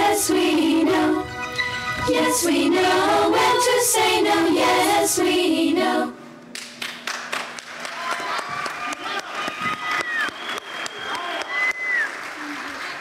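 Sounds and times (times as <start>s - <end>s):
people singing with accompaniment: 0.0s - 6.4s.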